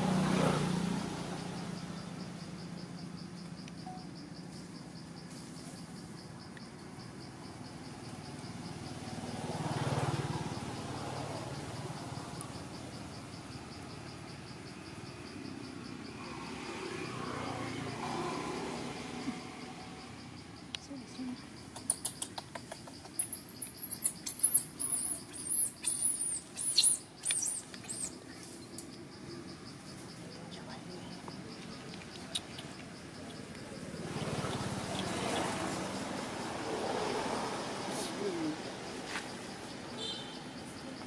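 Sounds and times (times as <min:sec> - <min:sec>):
insects chirring: 0:00.0 - 0:41.0
baby monkey squealing: 0:23.0 - 0:28.2.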